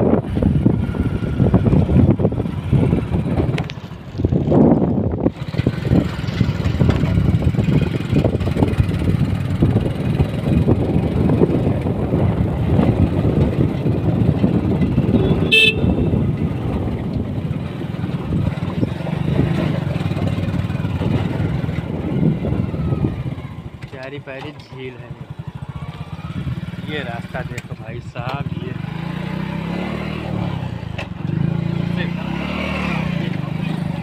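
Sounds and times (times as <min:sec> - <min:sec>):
motorcycle engine running: 0:00.0 - 0:34.0
wind and road noise: 0:00.0 - 0:34.0
horn beep: 0:15.1 - 0:16.1.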